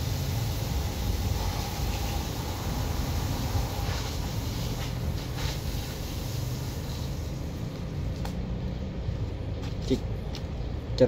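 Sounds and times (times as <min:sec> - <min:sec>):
even hiss: 0:00.0 - 0:08.0.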